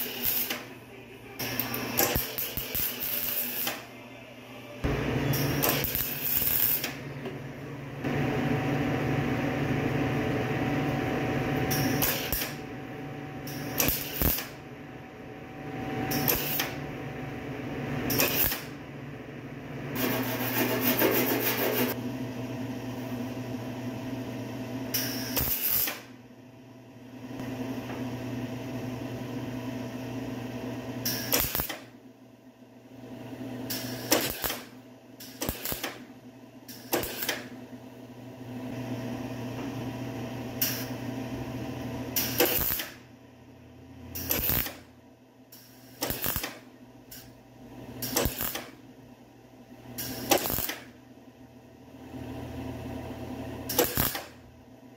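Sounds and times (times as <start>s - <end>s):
welding arc crackling and buzzing: 0.0s - 0.7s, 1.3s - 3.9s, 4.8s - 7.2s, 10.7s - 12.7s, 13.4s - 14.6s, 15.8s - 16.9s, 18.0s - 18.8s, 19.9s - 22.0s, 25.0s - 26.1s, 31.0s - 31.9s, 33.6s - 36.1s, 36.7s - 37.5s, 42.0s - 43.1s, 44.1s - 44.9s, 45.5s - 47.4s, 48.0s - 48.8s, 50.0s - 51.0s, 53.6s - 54.4s.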